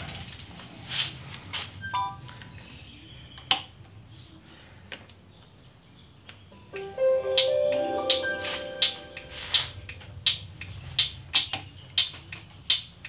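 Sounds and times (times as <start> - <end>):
music with mallet percussion: 6.8 - 9.9.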